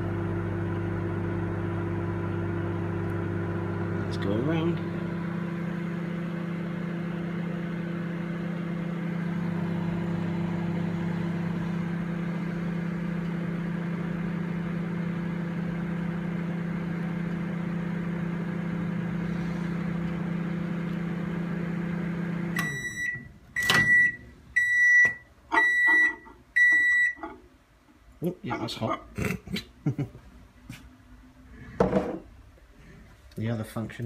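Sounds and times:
microwave oven humming: 0:00.0 - 0:27.5
microwave beeps: 0:22.4 - 0:27.4.

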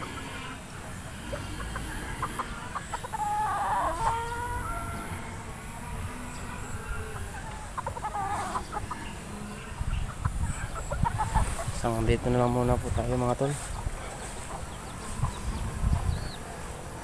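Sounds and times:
chicken drawn-out call: 0:00.0 - 0:11.8
chickens clucking: 0:00.0 - 0:17.0.

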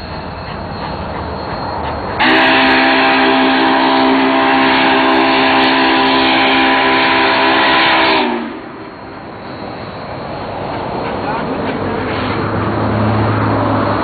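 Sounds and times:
train rumble: 0:00.0 - 0:14.0
steam whistle blowing: 0:02.2 - 0:08.8.

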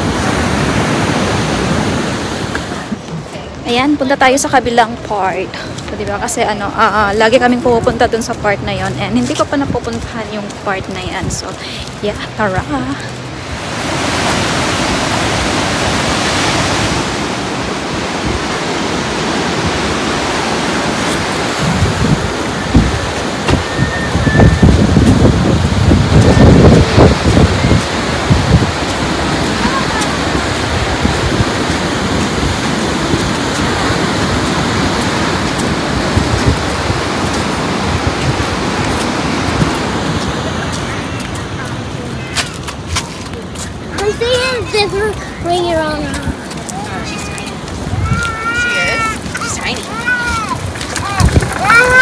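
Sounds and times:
ocean surf breaking: 0:00.0 - 0:52.0
wind on microphone: 0:00.0 - 0:52.0.

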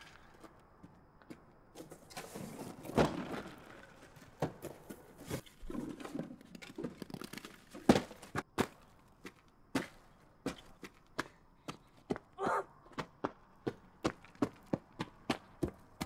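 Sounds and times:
apples thudding on ground: 0:04.4 - 0:11.3.

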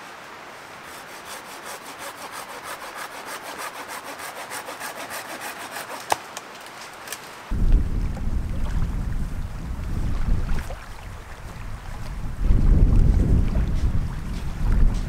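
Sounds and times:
hand saw cutting wood: 0:00.8 - 0:06.2.

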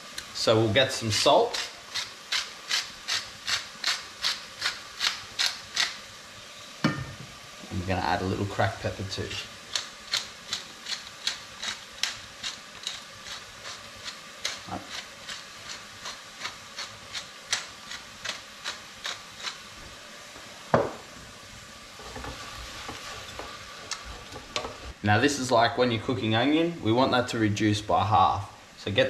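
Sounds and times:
low sizzle: 0:00.0 - 0:29.0
wooden spoon scraping a saucepan: 0:22.0 - 0:24.9.

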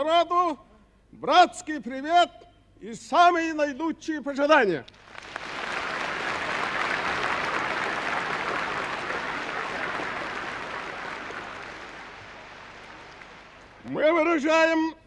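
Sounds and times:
large audience applauding: 0:05.0 - 0:13.8.

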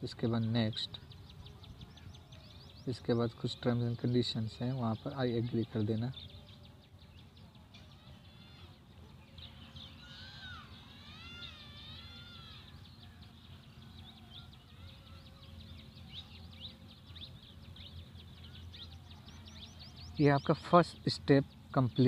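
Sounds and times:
birds chirping: 0:00.0 - 0:22.0
low steady hum: 0:00.0 - 0:22.0
bird wavering call: 0:07.2 - 0:20.7.

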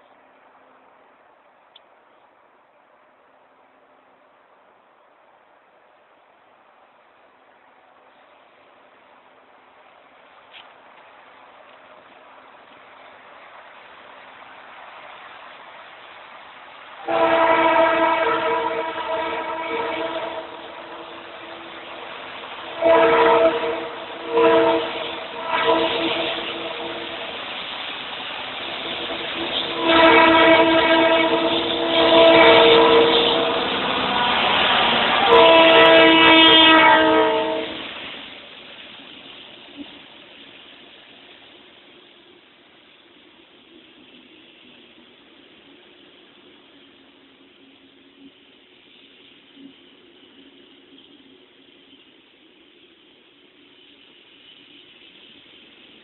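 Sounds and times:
oncoming train noise: 0:00.0 - 0:56.0
rumble of passing wagons: 0:00.0 - 0:56.0
locomotive horn blast: 0:17.0 - 0:22.0, 0:22.6 - 0:27.4, 0:29.4 - 0:37.9.

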